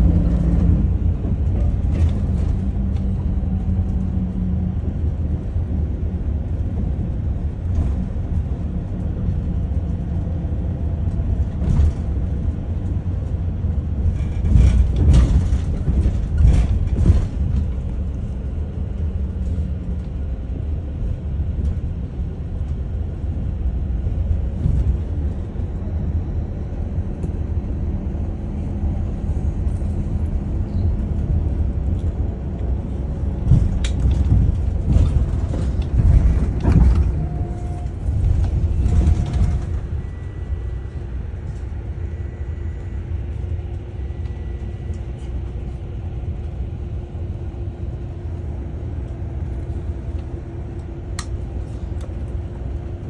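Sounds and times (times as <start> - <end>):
coach engine and road rumble: 0.0 - 53.0
knocks and rattling: 33.4 - 40.0.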